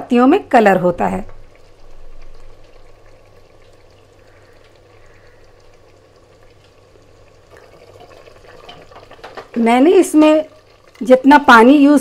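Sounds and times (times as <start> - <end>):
low steady hum: 0.0 - 12.0
curry bubbling in a pot: 0.4 - 12.0.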